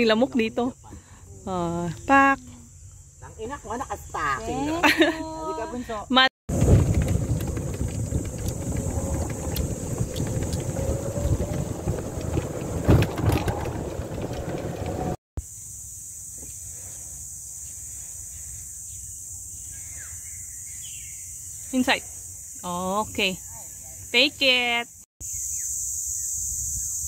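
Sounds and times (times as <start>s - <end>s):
insect chirring: 6.5s - 12.7s, 15.4s - 27.0s
golf cart tyres rumbling: 6.5s - 15.2s
knocks and rattles: 6.5s - 15.2s.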